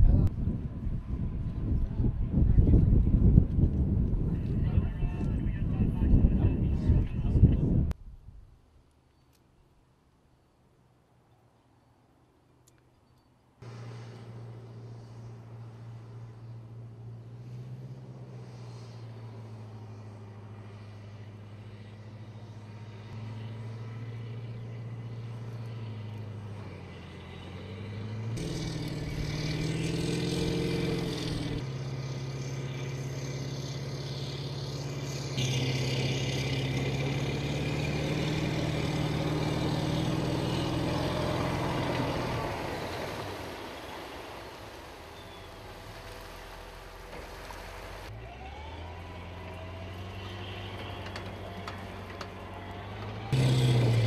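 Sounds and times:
low diesel engine drone: 0:13.6 - 0:54.0.

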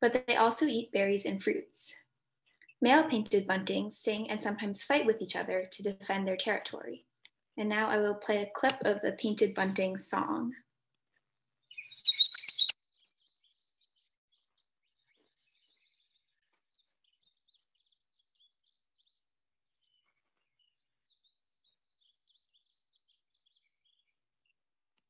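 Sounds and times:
bird chirping song: 0:11.4 - 0:24.2.

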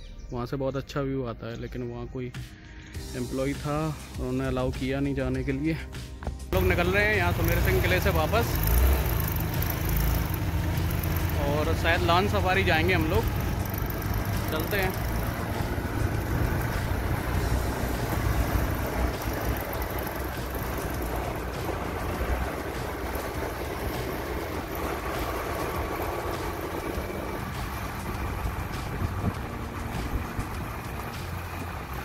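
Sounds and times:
motorcycle engines running: 0:06.5 - 0:32.0
wind buffeting microphone: 0:27.1 - 0:31.0.

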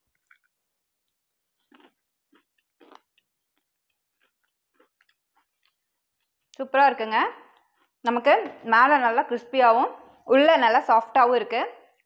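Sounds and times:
crunchy chewing: 0:00.0 - 0:06.6, 0:07.5 - 0:08.1.

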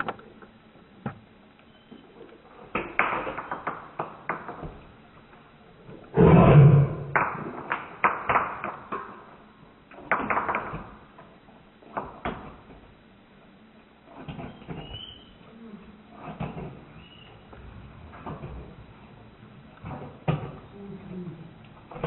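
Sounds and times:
dog growling: 0:06.1 - 0:07.2.

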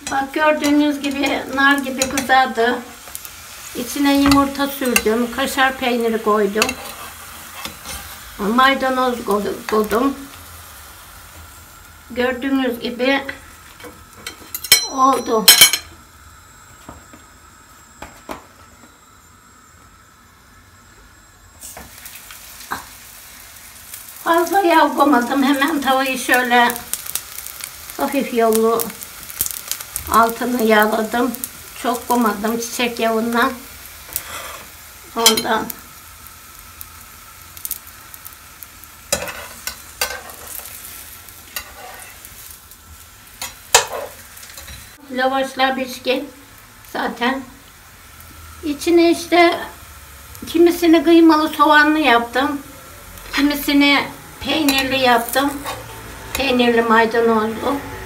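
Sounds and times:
flatbread sizzling in a frying pan: 0:00.0 - 0:58.0
metal tongs clicking on pan: 0:35.2 - 0:35.5.

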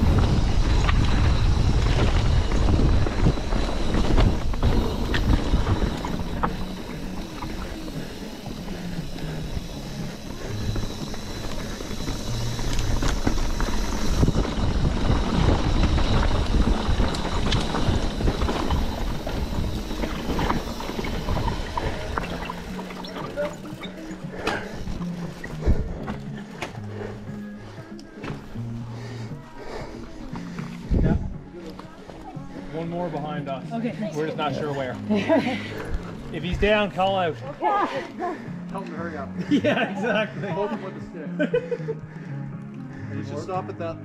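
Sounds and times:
wind buffeting microphone: 0:00.0 - 0:23.6, 0:30.8 - 0:31.5
mountain bike rumbling on dirt trail: 0:00.0 - 0:38.7
bike clicks and knocks: 0:00.1 - 0:26.9.

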